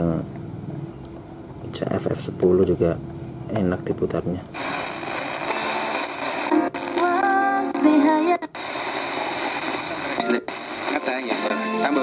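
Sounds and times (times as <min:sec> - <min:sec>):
radio static hiss: 0:03.6 - 0:12.0
singing from radio: 0:04.6 - 0:12.0.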